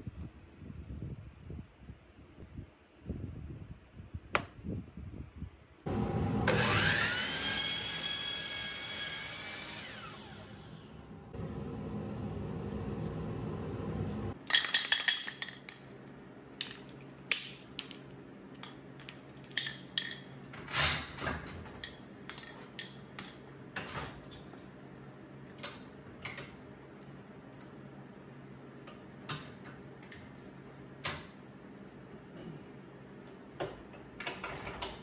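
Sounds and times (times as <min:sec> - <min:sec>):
power tool motor hum: 0:05.9 - 0:14.4.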